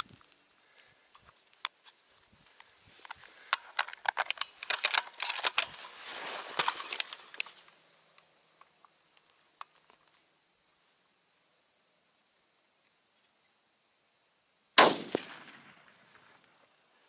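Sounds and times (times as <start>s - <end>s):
clothing and gear rustling: 1.2s - 7.8s
rifle clicks: 3.0s - 5.8s.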